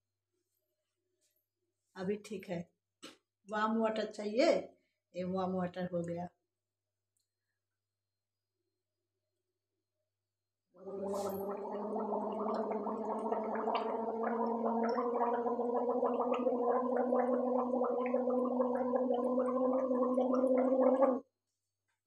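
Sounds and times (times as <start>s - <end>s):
woman gargling water: 10.8s - 21.3s.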